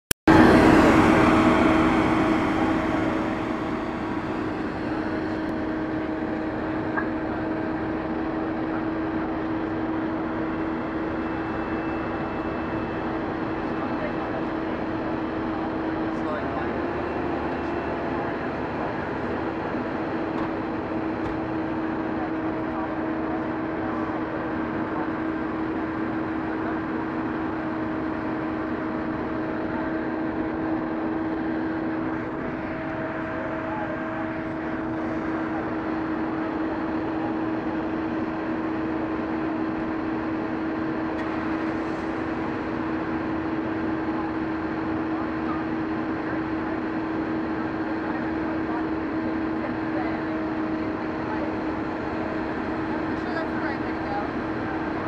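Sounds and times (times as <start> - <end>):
engines droning: 0.3 - 55.0.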